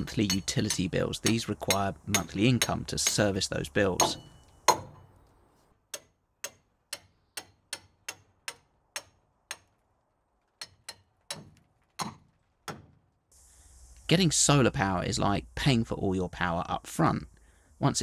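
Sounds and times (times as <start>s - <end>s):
hammer striking metal fastener: 0.0s - 3.4s, 4.0s - 5.1s, 5.9s - 9.7s.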